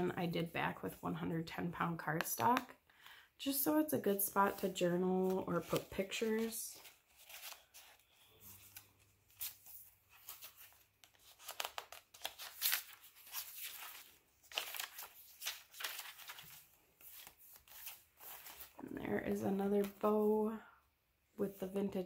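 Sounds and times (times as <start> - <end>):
paper pages rustling: 4.5 - 18.8.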